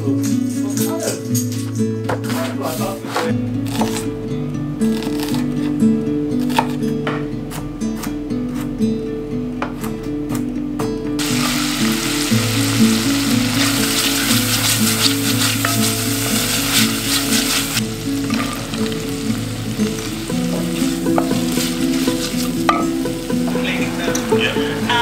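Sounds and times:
background music: 0:00.0 - 0:25.0
onion sizzling in a pot: 0:11.2 - 0:25.0
wooden spoon stirring: 0:11.2 - 0:25.0.

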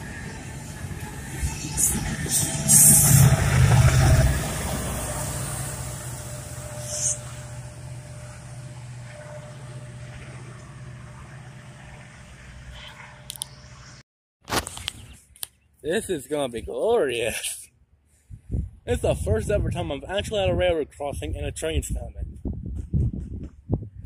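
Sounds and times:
freight train rumbling past: 0:00.0 - 0:14.0
road traffic hum: 0:00.0 - 0:15.7.

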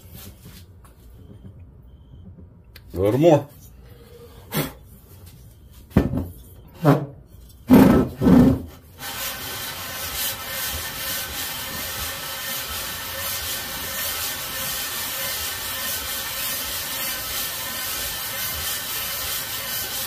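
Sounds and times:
gritty rubbing on sandpaper: 0:09.0 - 0:20.0
metal block scraping on sandpaper: 0:09.0 - 0:20.0.

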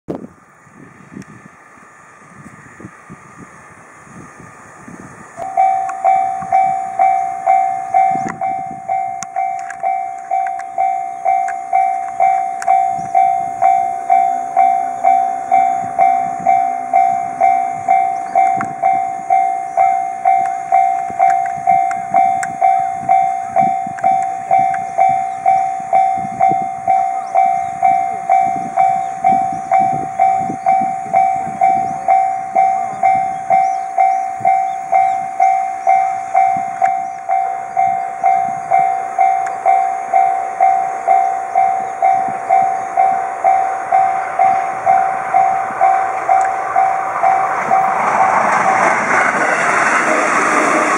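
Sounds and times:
low hum: 0:00.1 - 0:50.9
railroad crossing warning bell: 0:00.1 - 0:50.9
broad rushing noise: 0:39.0 - 0:50.9.

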